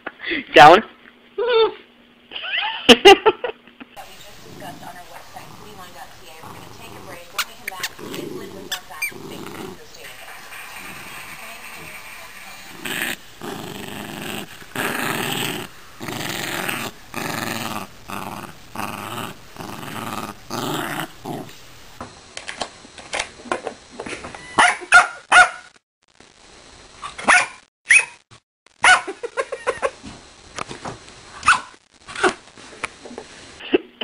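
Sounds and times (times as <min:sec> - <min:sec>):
small dog growling: 0:04.3 - 0:21.7
dog barking sharply: 0:24.6 - 0:25.7, 0:27.2 - 0:28.1, 0:28.8 - 0:29.1.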